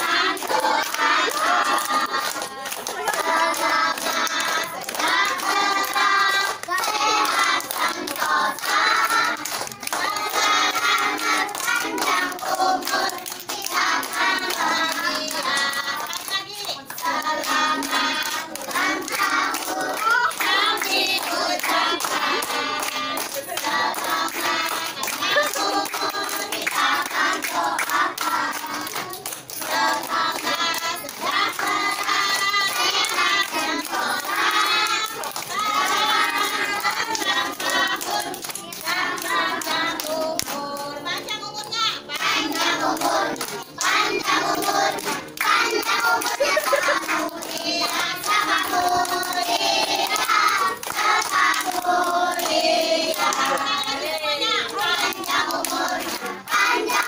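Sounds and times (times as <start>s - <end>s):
group singing: 0.0s - 57.0s
people clapping: 0.0s - 57.0s.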